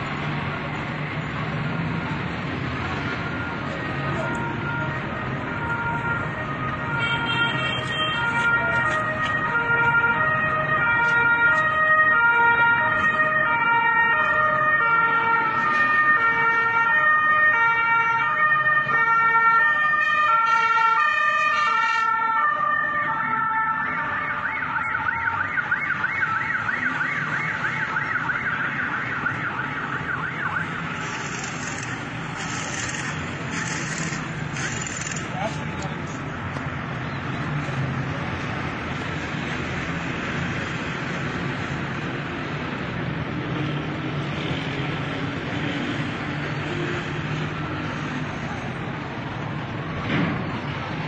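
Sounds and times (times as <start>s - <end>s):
two-tone siren: 3.0s - 35.2s
warbling siren: 8.1s - 35.2s.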